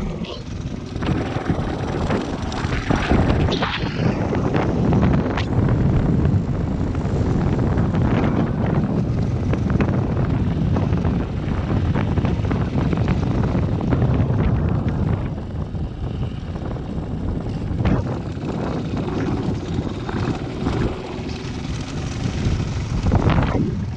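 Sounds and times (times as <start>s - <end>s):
motorcycle engine running: 0.0s - 23.9s
wind buffeting microphone: 0.0s - 23.9s.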